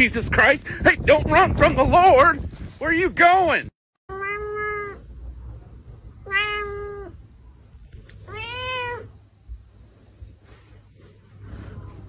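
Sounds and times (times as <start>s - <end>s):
cat meowing: 4.1s - 5.1s, 6.2s - 7.2s, 8.1s - 9.2s.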